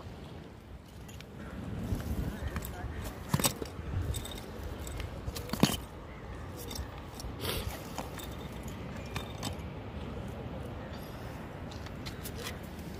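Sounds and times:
low background noise: 0.0 - 12.9.

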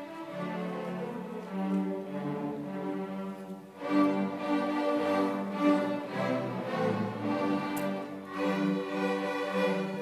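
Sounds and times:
orchestra playing sustained notes: 0.0 - 10.0
short tick: 7.6 - 8.0.

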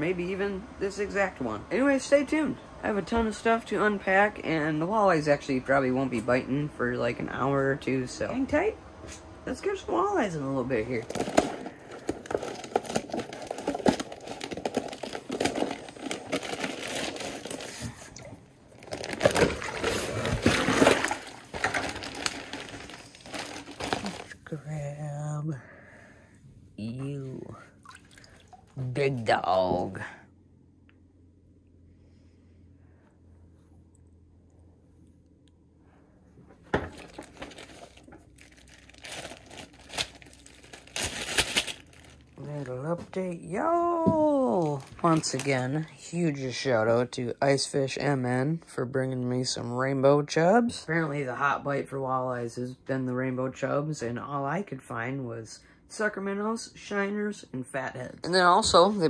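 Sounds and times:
plastic bag crinkling: 10.8 - 24.5, 36.8 - 42.6, 44.3 - 46.0
water splashing into a bucket: 18.1 - 24.1, 27.8 - 28.8.

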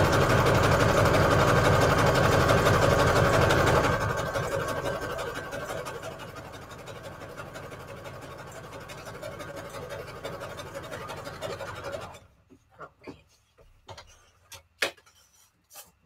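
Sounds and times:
sewing machine stitching paper: 0.0 - 12.3.

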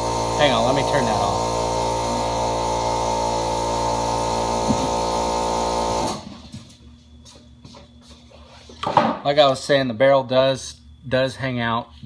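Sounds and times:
machine humming: 0.0 - 8.7.

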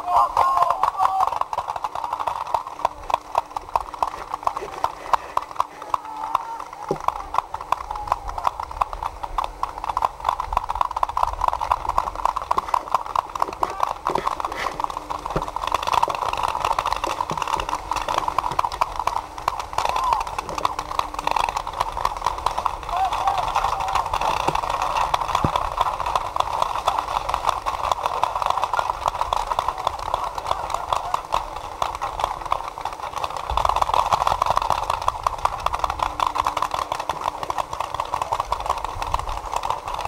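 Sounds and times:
paintball markers firing: 11.6 - 19.6.

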